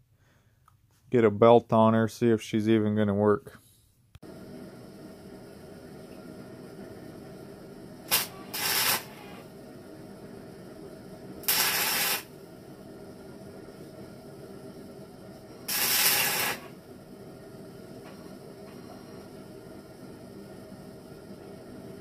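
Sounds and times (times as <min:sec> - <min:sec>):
welding arc bursts: 0:08.0 - 0:09.5, 0:11.4 - 0:12.4, 0:15.7 - 0:16.8.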